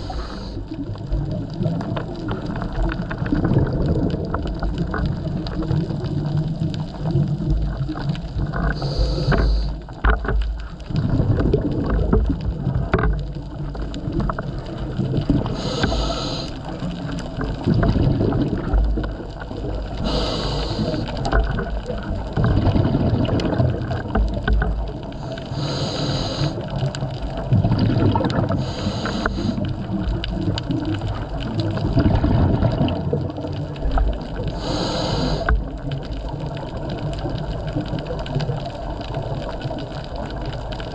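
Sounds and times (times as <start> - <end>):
regulator inhale hiss: 0.0 - 0.7, 8.7 - 9.8, 15.4 - 16.8, 20.0 - 21.3, 25.2 - 26.8, 28.5 - 29.7, 34.5 - 35.7
gurgle of exhaled bubbles: 0.0 - 40.9.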